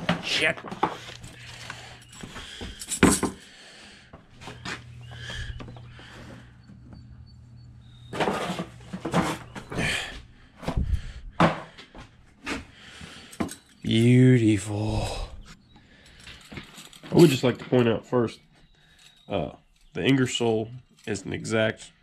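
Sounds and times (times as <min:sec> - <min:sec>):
steady low hum: 0:00.5 - 0:17.4.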